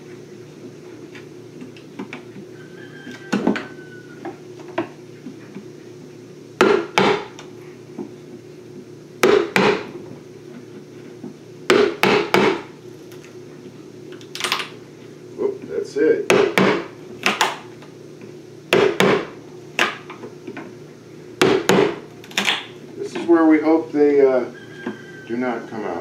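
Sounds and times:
chisel knocking into wood: 6.6s - 7.3s, 9.2s - 9.9s, 11.7s - 12.7s, 16.3s - 17.6s, 21.4s - 22.0s.

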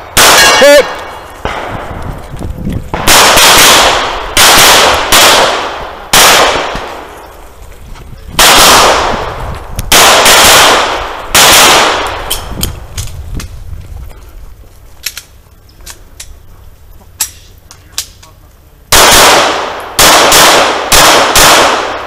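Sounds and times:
handgun shots with echo: 3.0s - 6.9s, 19.0s - 22.0s.

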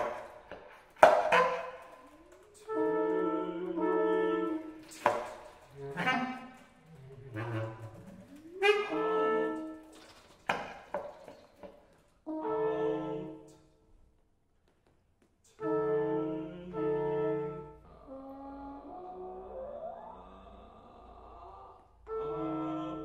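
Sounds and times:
chamber music with brass: 0.0s - 10.1s, 12.2s - 13.6s, 15.5s - 18.0s, 22.0s - 23.0s.

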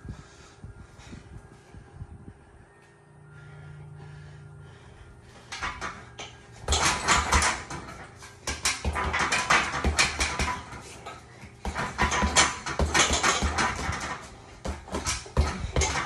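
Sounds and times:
punches on heavy bag: 11.6s - 16.0s.

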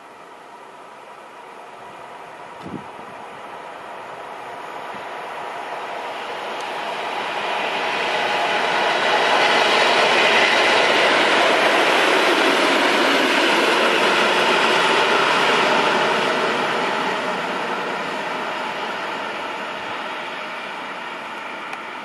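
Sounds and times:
diesel locomotives passing: 0.0s - 22.0s.

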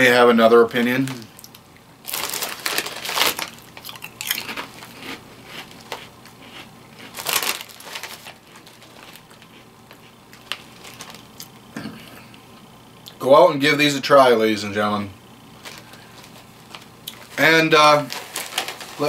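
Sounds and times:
chewing crunchy chips: 1.4s - 11.6s
chip bag rustling: 2.0s - 11.5s, 15.6s - 19.0s.

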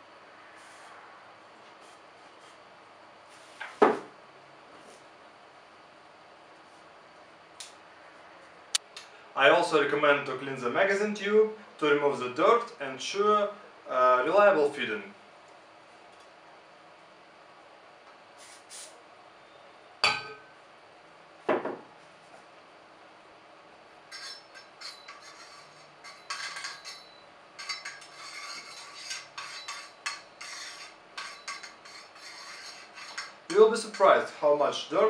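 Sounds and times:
metallic scraping and clinking: 24.0s - 34.3s.

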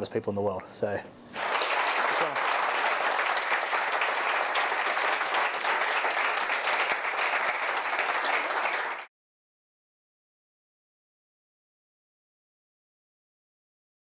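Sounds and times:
audience clapping: 1.3s - 9.1s.

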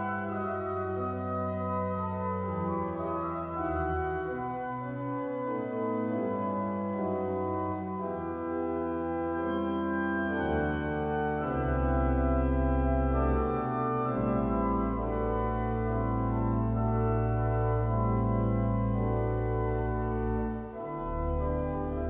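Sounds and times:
deep organ pedal bass: 0.0s - 22.0s
pipe organ chords: 0.0s - 22.0s.

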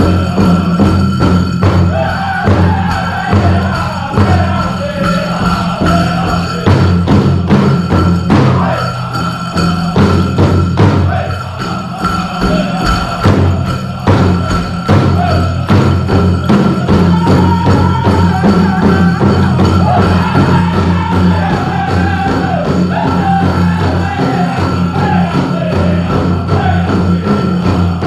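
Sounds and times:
group singing: 0.0s - 28.0s
large drum beating: 0.0s - 28.0s.

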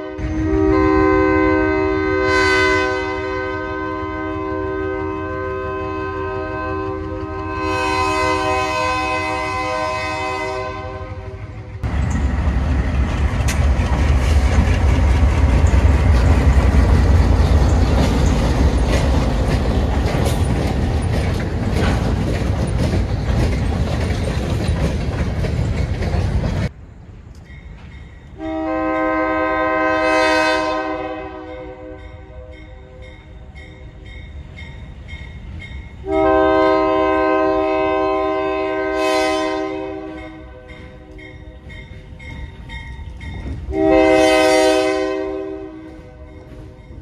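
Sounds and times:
locomotive horn: 0.0s - 11.6s, 28.4s - 33.2s, 36.0s - 41.7s, 43.6s - 46.9s
locomotive engine rumble: 3.2s - 29.1s
train wheels clicking on rails: 6.1s - 8.6s, 11.0s - 28.4s, 40.1s - 44.9s.

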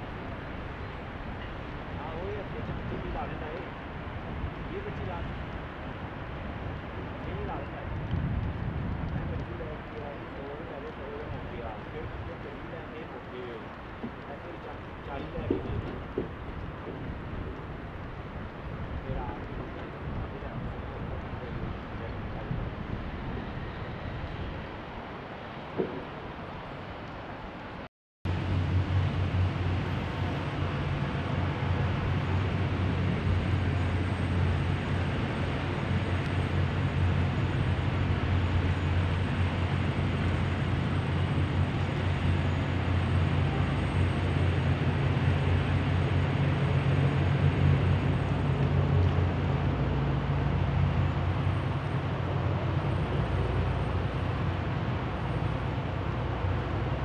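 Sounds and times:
city noise: 0.0s - 57.0s
low engine drone: 28.3s - 57.0s.

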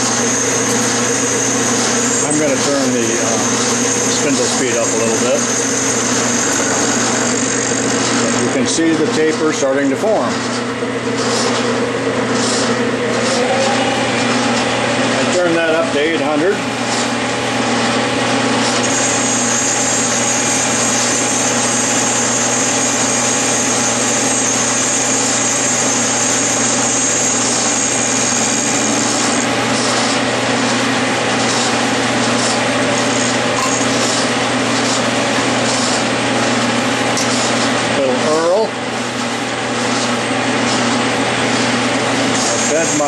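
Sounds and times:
lathe motor hum: 0.0s - 43.0s.

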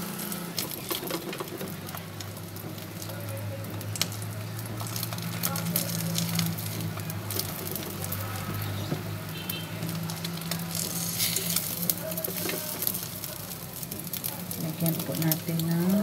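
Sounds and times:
food sizzling in oil: 0.0s - 16.0s
fork turning bread in pan: 9.7s - 14.3s.

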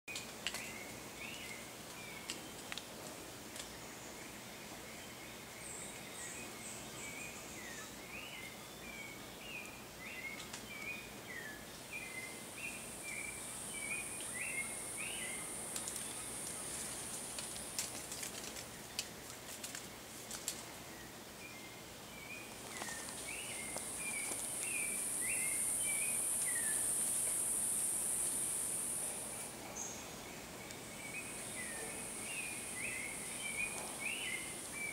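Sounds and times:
bird chirping: 3.7s - 16.9s, 20.9s - 34.9s
high insect buzz: 12.3s - 18.5s, 22.6s - 29.9s, 31.1s - 34.9s
faint clicks or rustles: 15.7s - 20.8s.

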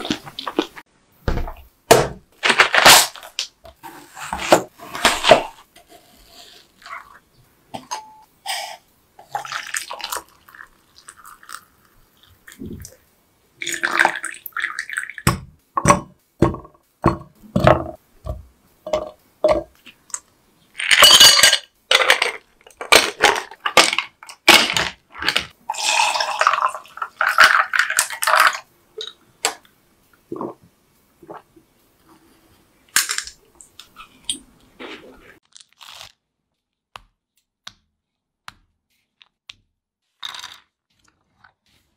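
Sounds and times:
pouring: 9.2s - 13.0s, 13.6s - 15.2s, 20.8s - 29.2s
utensils clinking on plastic cup: 20.8s - 25.5s.

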